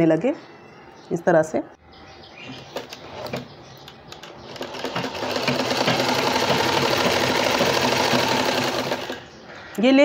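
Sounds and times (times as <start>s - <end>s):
sewing machine stitching: 4.2s - 9.2s.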